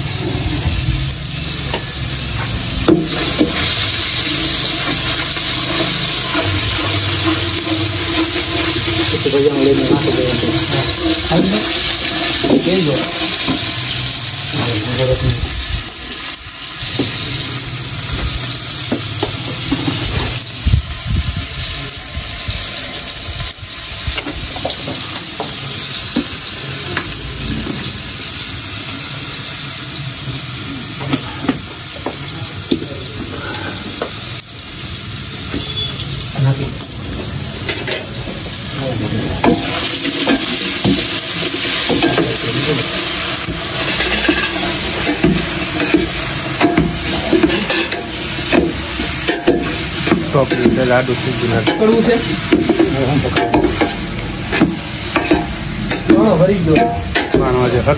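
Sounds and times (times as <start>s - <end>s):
potatoes sizzling in a pot: 0.0s - 57.9s
wooden paddle scraping a pot: 3.0s - 14.0s.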